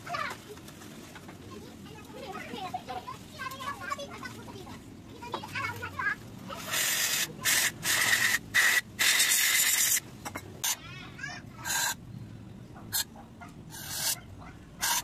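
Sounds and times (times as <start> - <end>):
aerosol spray hissing: 6.7 - 10.0, 11.7 - 12.0, 13.7 - 14.2.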